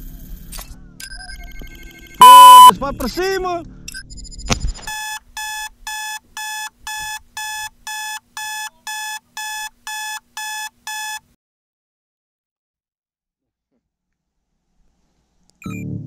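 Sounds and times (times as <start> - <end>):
electronic alarm beeping: 1.7 - 2.7.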